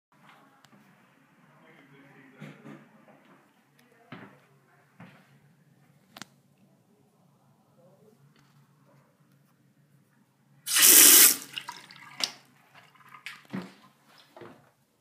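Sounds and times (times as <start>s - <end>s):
urinal flushing: 10.7s - 14.3s.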